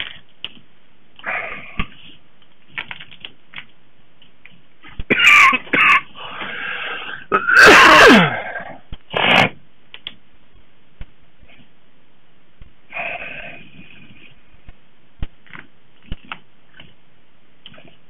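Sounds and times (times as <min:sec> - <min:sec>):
noisy breath out: 0:06.2 - 0:07.3
person sneezing: 0:07.1 - 0:09.6.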